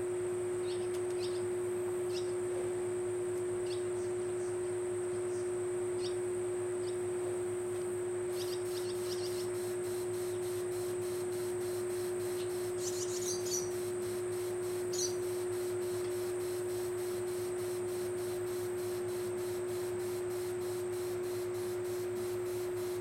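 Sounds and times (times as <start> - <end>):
steady hum: 0.0 - 23.0
faint bird chirps: 0.6 - 1.5, 3.6 - 4.6, 8.3 - 10.8, 11.7 - 16.3
quick regular chirping: 8.3 - 23.0.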